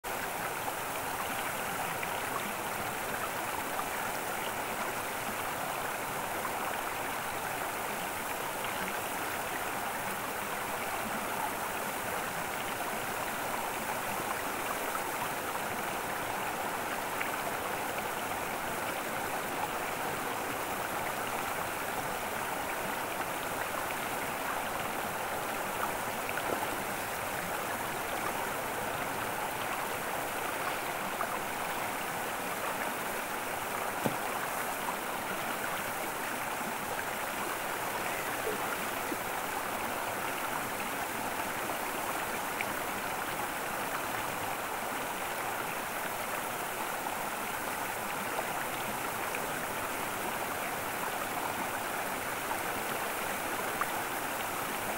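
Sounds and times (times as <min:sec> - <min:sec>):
running water rushing: 0:00.1 - 0:54.9.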